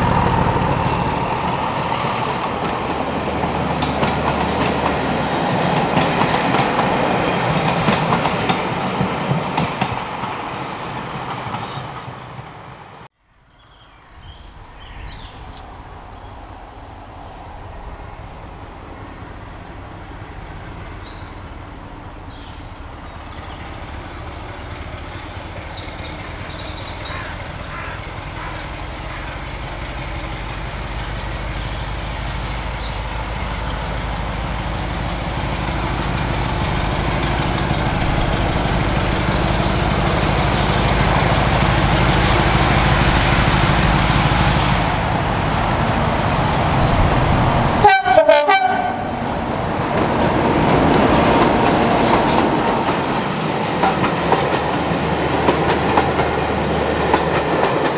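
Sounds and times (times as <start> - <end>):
diesel locomotive engine running: 0.0 - 10.4, 14.2 - 57.9
loud burst: 46.3 - 49.6.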